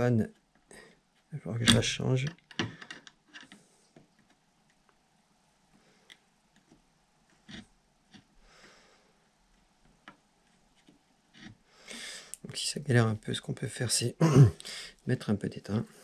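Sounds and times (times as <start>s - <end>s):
soft breath: 8.4s - 9.3s, 11.6s - 12.4s.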